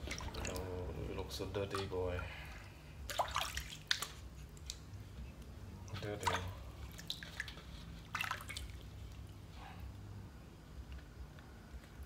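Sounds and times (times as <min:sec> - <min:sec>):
water splashing in metal basin: 0:00.0 - 0:02.4, 0:03.0 - 0:04.9, 0:05.8 - 0:09.3.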